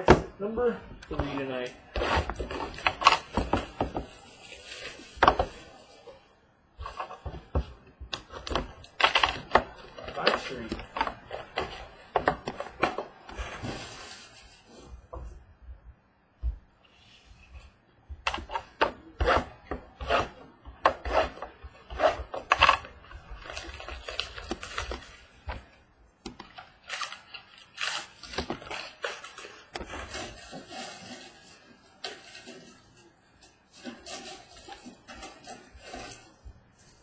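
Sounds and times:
rustling and crinkling cardboard: 0.0s - 15.5s, 16.4s - 37.0s
cardboard box ripping: 9.0s - 14.4s, 22.0s - 25.3s, 26.8s - 32.9s.

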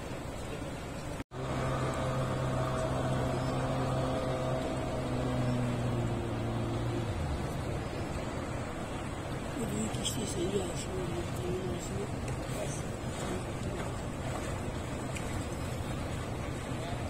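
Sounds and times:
river rushing: 0.0s - 17.0s
outboard motor drone: 0.1s - 17.0s.

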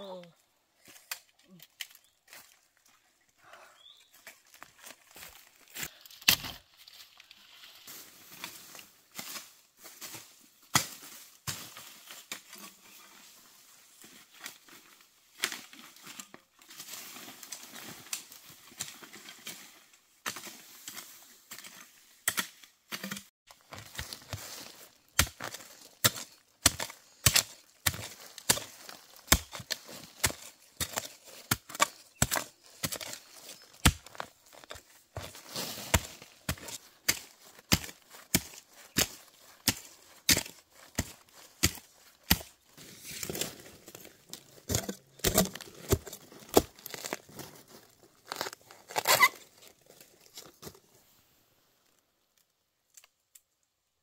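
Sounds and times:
hoe striking earth: 21.5s - 47.4s
footsteps through dry leaves: 23.5s - 50.7s.

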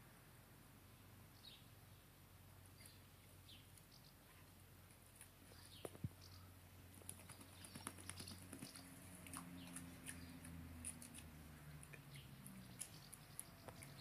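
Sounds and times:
puppy paws on wet stone: 6.9s - 14.0s.

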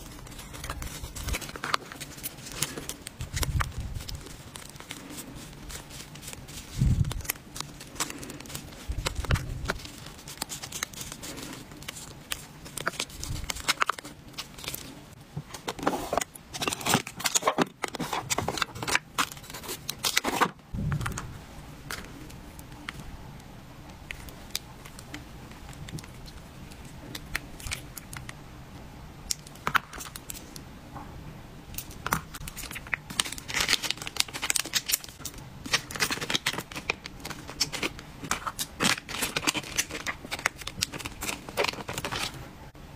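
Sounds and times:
paper packets rustling: 0.0s - 20.6s, 31.7s - 42.4s.

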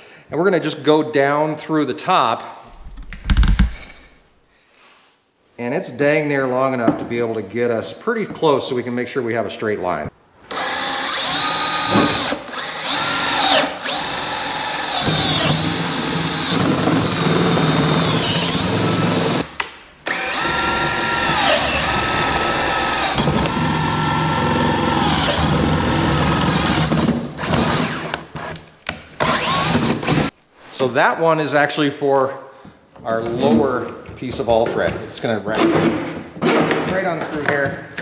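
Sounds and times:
drill bit boring through plastic: 10.5s - 19.5s, 20.1s - 28.2s, 29.2s - 30.3s
power drill whining: 10.5s - 19.5s, 20.1s - 28.2s, 29.2s - 30.3s.

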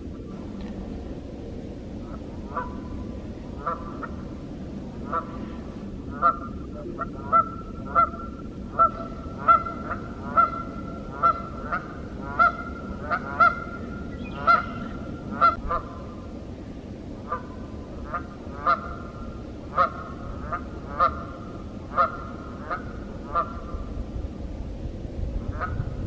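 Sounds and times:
geese honking: 2.0s - 2.9s, 3.6s - 4.2s, 5.0s - 16.0s, 17.2s - 23.8s, 25.5s - 25.8s.

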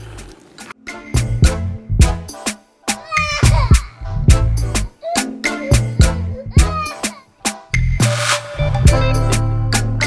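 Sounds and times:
music with drum beat and bass: 1.2s - 10.0s.

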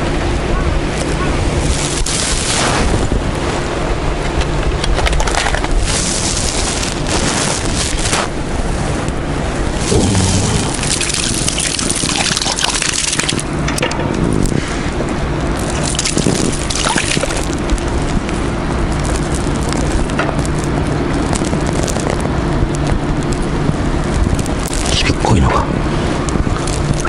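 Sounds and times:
fish splashing and thrashing in water: 5.0s - 6.6s, 9.8s - 13.4s, 15.6s - 17.6s.

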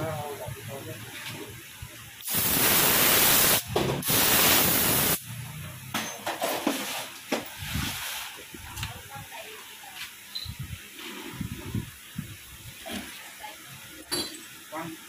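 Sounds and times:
pressurised air spraying hiss: 2.2s - 5.2s.

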